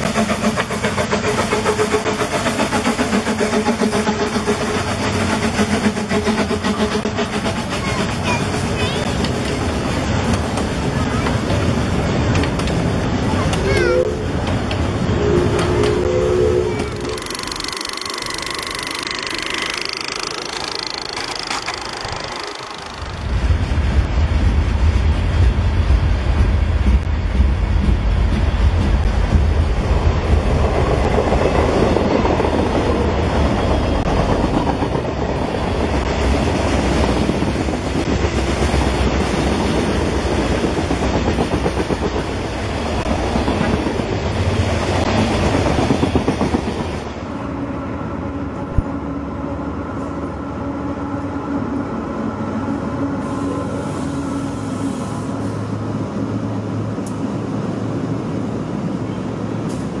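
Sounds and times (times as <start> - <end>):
diesel locomotives passing: 0.0 - 60.0
freight cars rumbling over rails: 0.0 - 60.0.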